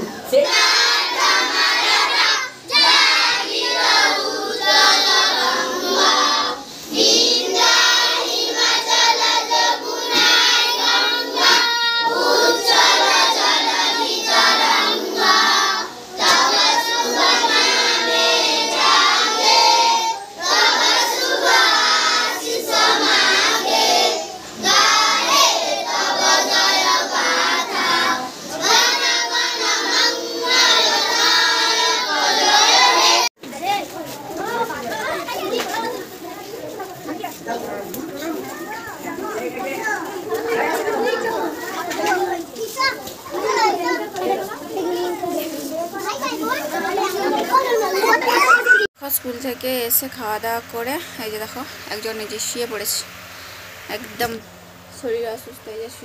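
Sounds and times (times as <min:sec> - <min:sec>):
children singing in chorus: 0:00.0 - 0:33.3.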